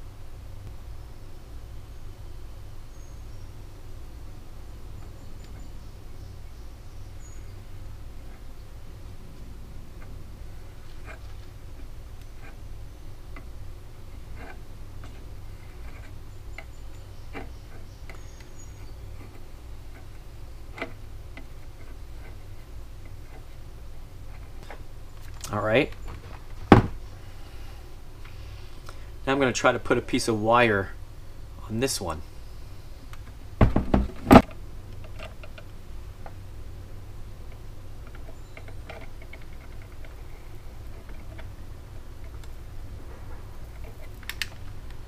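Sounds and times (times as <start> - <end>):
steady low hum: 0.0 - 45.0
loud knocks on workbench: 26.7 - 27.0, 33.6 - 34.4
soldering iron clicks and crackles: 43.7 - 45.0.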